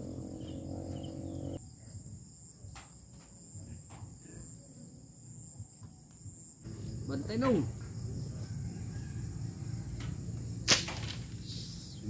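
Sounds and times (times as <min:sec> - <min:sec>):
low hum: 0:00.0 - 0:01.6
insects droning: 0:00.0 - 0:12.0.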